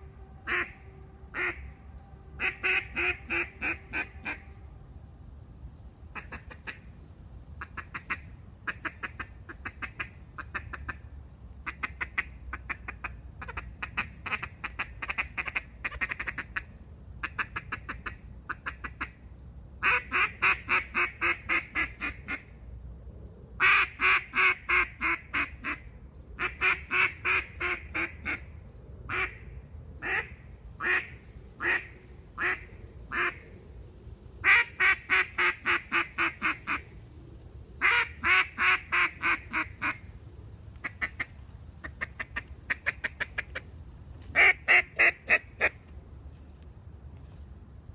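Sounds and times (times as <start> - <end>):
duck call quacks: 0.4 - 1.6, 2.4 - 4.4, 11.7 - 19.2, 19.8 - 22.4, 23.6 - 25.8, 26.4 - 28.4, 29.1 - 29.4, 30.0 - 33.4, 34.4 - 36.8, 37.8 - 40.0, 44.4 - 45.8.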